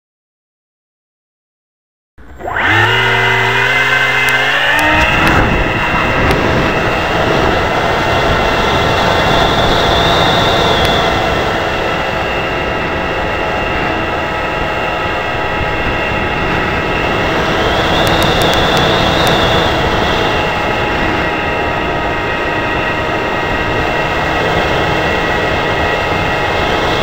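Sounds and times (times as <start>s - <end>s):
higher whine: 2.2s - 27.0s
model plane motor whine: 2.2s - 27.0s
air rushing on microphone: 13.7s - 21.0s.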